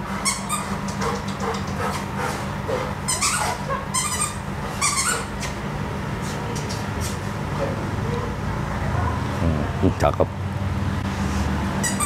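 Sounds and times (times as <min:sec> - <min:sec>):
steady low hum: 0:00.0 - 0:12.0
dog whining: 0:00.2 - 0:05.6.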